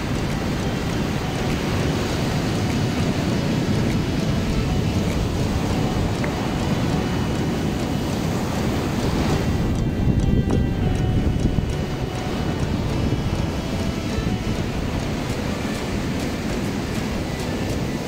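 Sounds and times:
breaking surf: 0.0s - 18.0s
wind buffeting microphone: 0.0s - 18.0s.

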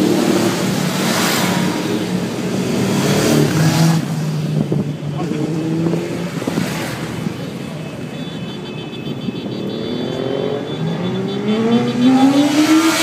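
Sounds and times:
motorbike accelerating: 9.9s - 13.0s.

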